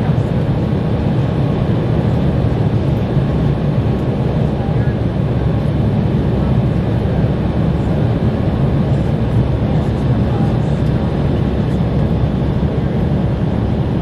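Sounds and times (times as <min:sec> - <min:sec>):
jet engines low rumble in cabin: 0:00.0 - 0:14.0.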